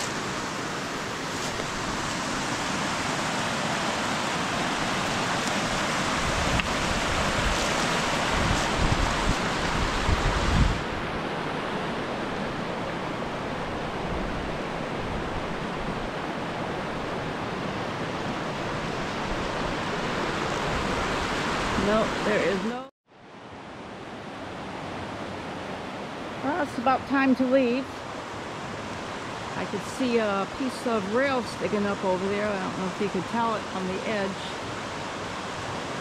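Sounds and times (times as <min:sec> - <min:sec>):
waterfall rushing: 0:00.0 - 0:10.9
wind buffeting microphone: 0:01.5 - 0:22.7.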